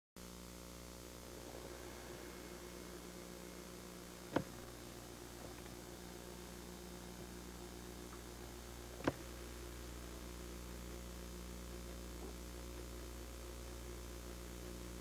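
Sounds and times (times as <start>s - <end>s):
electrical hum and hiss: 0.2s - 15.0s.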